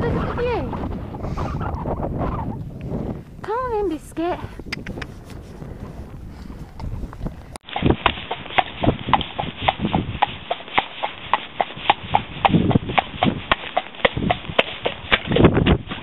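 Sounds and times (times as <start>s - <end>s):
horse hooves splashing in water: 7.6s - 16.0s.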